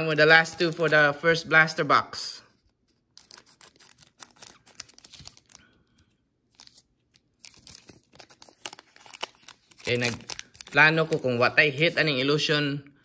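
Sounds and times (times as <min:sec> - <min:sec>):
wrapper crinkling and tearing: 0:03.1 - 0:05.8, 0:06.5 - 0:11.5.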